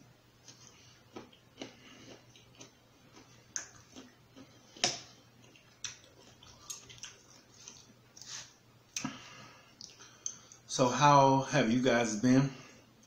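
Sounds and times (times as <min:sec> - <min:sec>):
wet chewing: 0:00.4 - 0:09.1.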